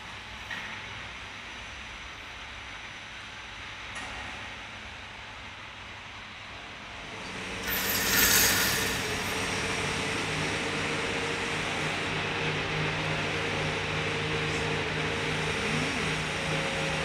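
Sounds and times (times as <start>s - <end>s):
mechanical rumble and hiss: 0.1s - 17.0s
low hum: 7.6s - 12.0s.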